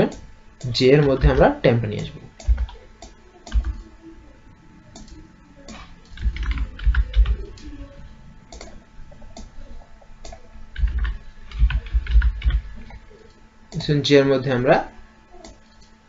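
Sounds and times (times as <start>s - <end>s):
keyboard typing: 0.1s - 3.9s, 4.9s - 7.8s, 8.5s - 8.8s, 10.2s - 13.9s.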